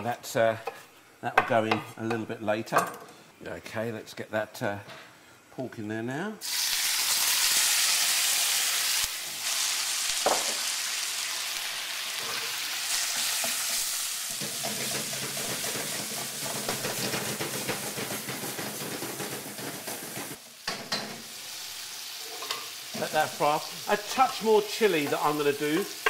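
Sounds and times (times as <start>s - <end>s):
meat sizzling in a wok: 6.4s - 26.0s.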